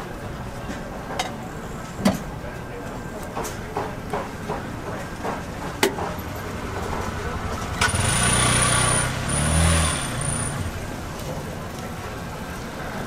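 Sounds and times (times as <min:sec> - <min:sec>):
street market noise: 0:00.0 - 0:13.0
vehicle engine running: 0:06.2 - 0:12.6.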